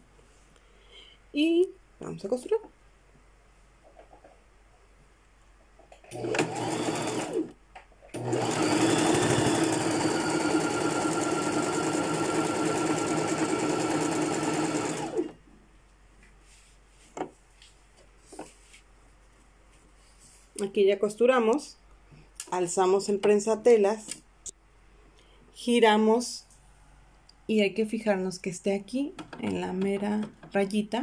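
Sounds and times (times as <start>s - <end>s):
sewing machine stitching: 6.1s - 15.4s.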